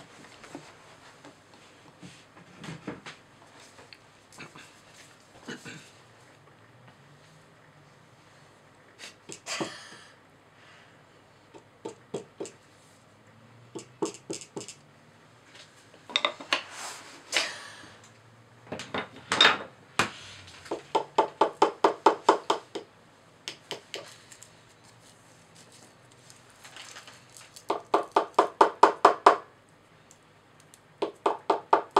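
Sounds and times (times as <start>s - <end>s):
tools tapping and scraping plaster: 11.5s - 12.6s, 13.7s - 14.8s, 20.7s - 24.2s, 27.6s - 29.5s, 31.0s - 31.9s.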